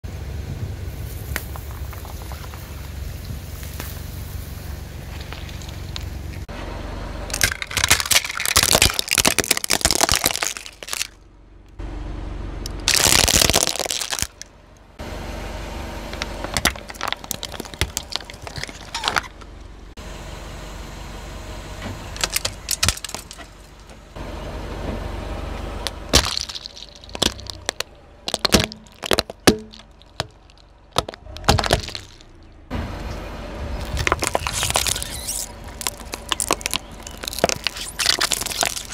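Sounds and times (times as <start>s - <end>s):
plastic toys cracking and snapping: 7.3s - 11.2s, 12.7s - 14.5s, 16.2s - 19.2s, 22.2s - 23.5s, 25.8s - 32.3s, 33.8s - 38.9s
plastic tubs crackling: 7.3s - 11.2s, 12.8s - 14.5s, 16.2s - 19.3s, 22.2s - 23.7s, 25.8s - 32.4s, 33.8s - 38.9s
water beads squishing and popping: 7.3s - 11.2s, 12.7s - 14.5s, 16.2s - 19.2s, 25.8s - 32.3s, 33.9s - 38.9s.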